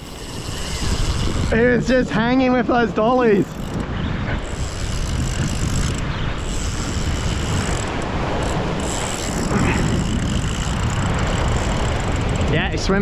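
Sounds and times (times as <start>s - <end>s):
ocean surf on rocks: 0.0s - 13.0s.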